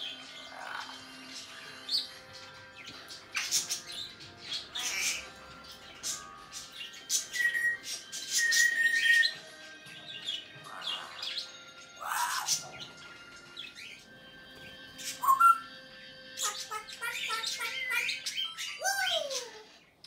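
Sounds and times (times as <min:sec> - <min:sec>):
parrot whistling: 0:07.2 - 0:09.4, 0:15.1 - 0:15.7.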